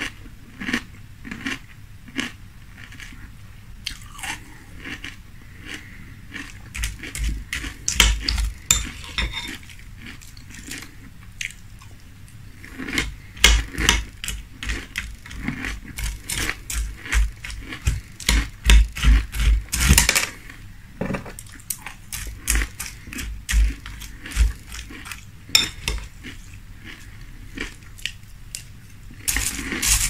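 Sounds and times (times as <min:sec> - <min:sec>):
crunchy chewing of cereal: 0:00.0 - 0:20.8, 0:21.4 - 0:30.0
metal spoon clinking on glass bowl: 0:07.9 - 0:09.6, 0:25.6 - 0:26.0.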